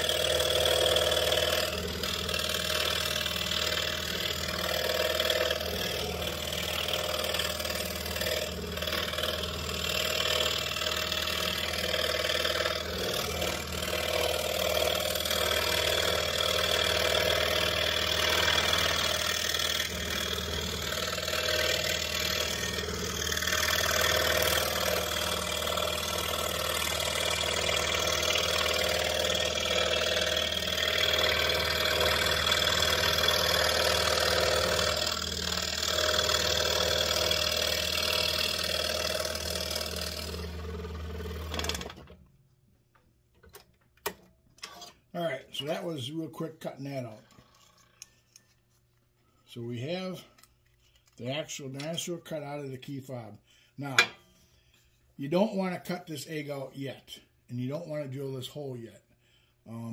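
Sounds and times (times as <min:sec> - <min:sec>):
saw blade cutting wood: 0:00.0 - 0:42.0
scroll saw motor hum: 0:00.0 - 0:42.2, 0:47.2 - 0:48.6.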